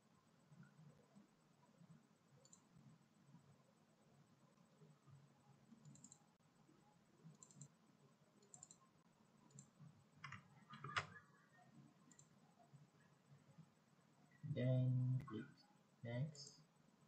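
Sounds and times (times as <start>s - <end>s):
faint computer mouse clicks: 2.4s - 2.7s, 5.8s - 6.2s, 7.3s - 7.8s, 8.4s - 8.8s, 9.5s - 11.0s, 12.1s - 12.4s.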